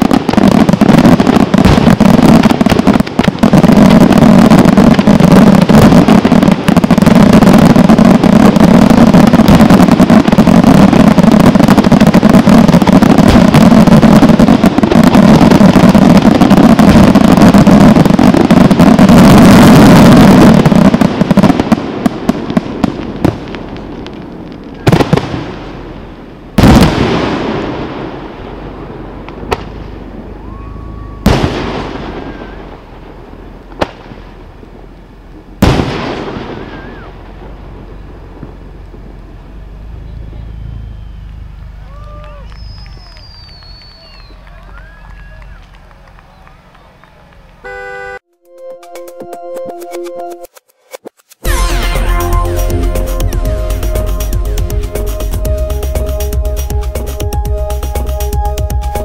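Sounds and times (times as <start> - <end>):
firework shell bursts and crackling: 0.0 - 30.2, 40.9 - 44.4, 50.4 - 59.0
loud firework bangs with rumble: 0.0 - 34.8, 35.4 - 44.4.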